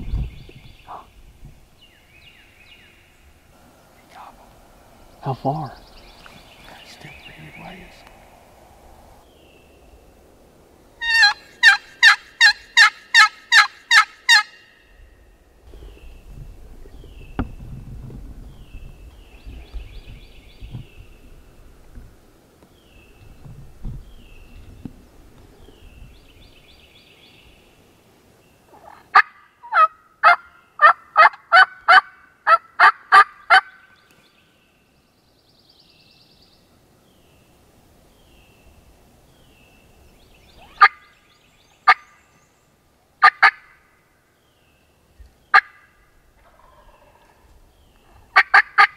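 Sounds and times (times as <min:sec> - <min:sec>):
faint songbird chirps: 0:00.0 - 0:08.6, 0:09.2 - 0:10.3, 0:18.4 - 0:21.8, 0:22.6 - 0:29.1, 0:33.6 - 0:43.1
turkey yelps: 0:11.0 - 0:14.6, 0:28.7 - 0:33.8, 0:43.2 - 0:43.7, 0:48.3 - 0:48.9.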